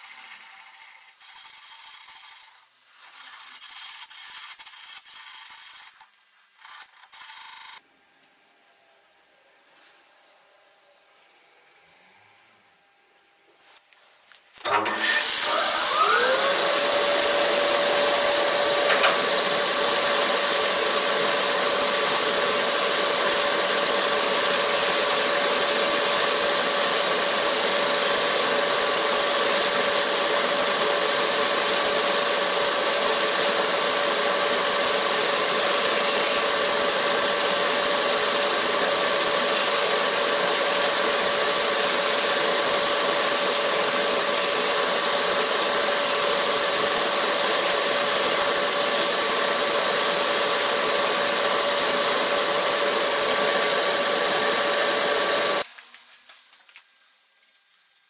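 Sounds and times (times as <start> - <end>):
polishing machine motor whine: 14.7 - 55.6.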